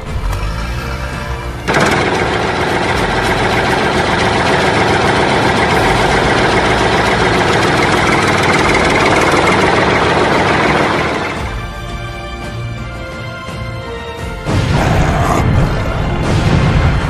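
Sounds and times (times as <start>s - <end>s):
tank engine rumbling: 0.0s - 13.0s.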